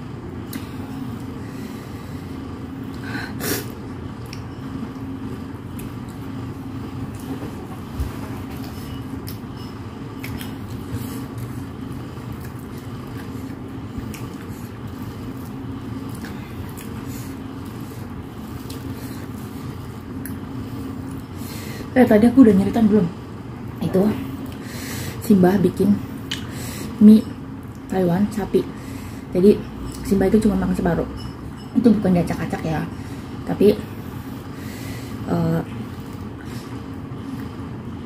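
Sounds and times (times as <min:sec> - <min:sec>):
steady low hum: 0:00.0 - 0:38.0
person chewing food: 0:03.7 - 0:06.3, 0:10.1 - 0:21.3.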